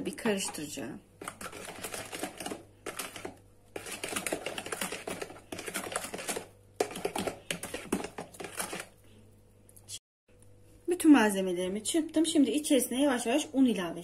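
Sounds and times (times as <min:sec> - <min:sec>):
metal whisk rattling in plastic bowl: 0:01.2 - 0:09.0.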